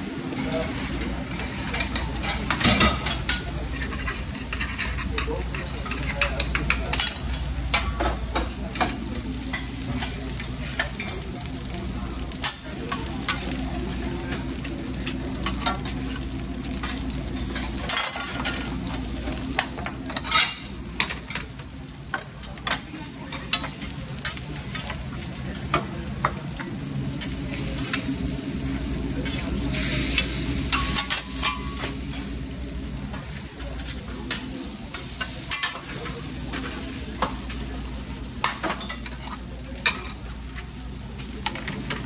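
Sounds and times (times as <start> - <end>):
food sizzling on griddle: 0.0 - 42.0
metal spatula clanking and scraping: 1.4 - 8.9, 29.2 - 32.4, 34.3 - 37.3.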